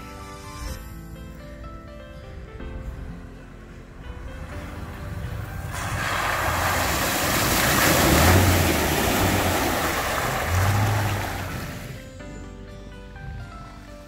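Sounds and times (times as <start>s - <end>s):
truck engine low drone: 0.0s - 14.0s
water splashing from tyres: 4.8s - 12.2s.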